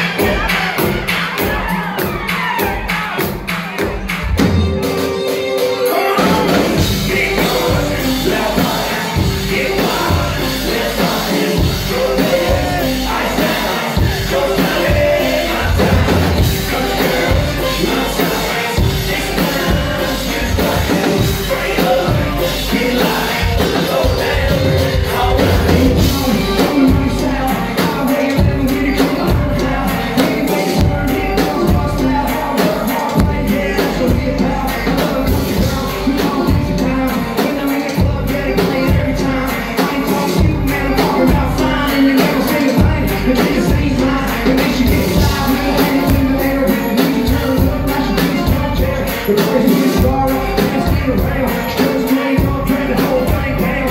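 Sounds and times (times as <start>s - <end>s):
steady drum beat: 0.0s - 53.9s.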